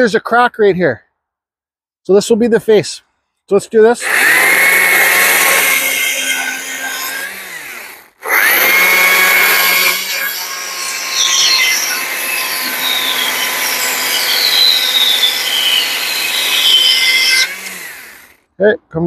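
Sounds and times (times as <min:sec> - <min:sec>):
chain cutting wood: 0:04.0 - 0:18.4
chainsaw motor whine: 0:04.0 - 0:18.5.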